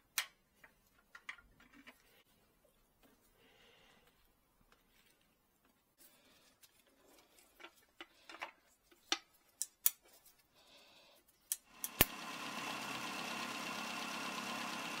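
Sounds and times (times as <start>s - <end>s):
car engine running: 12.0s - 15.0s.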